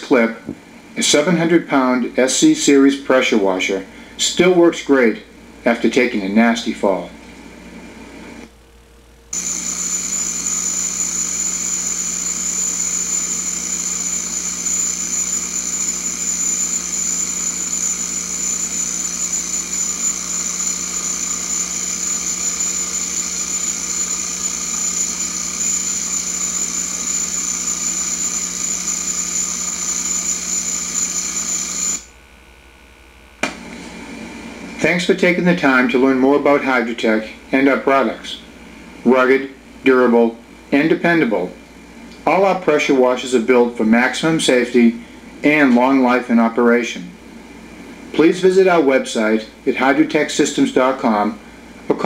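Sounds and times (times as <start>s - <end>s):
pressure washer running: 9.4s - 32.2s.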